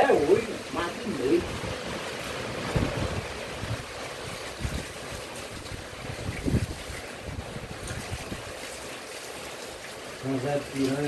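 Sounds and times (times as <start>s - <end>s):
rain hissing: 0.0s - 11.0s
wind buffeting microphone: 1.1s - 8.6s.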